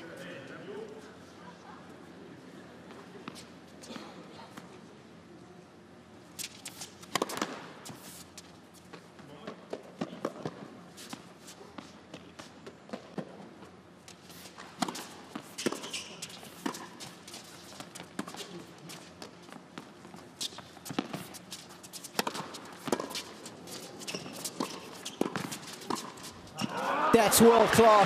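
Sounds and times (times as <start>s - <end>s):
racquets striking tennis ball: 6.4s - 7.8s, 14.6s - 18.5s, 19.2s - 26.8s
tennis ball bouncing: 7.0s - 7.7s, 14.6s - 18.5s, 19.2s - 21.4s, 22.0s - 26.8s.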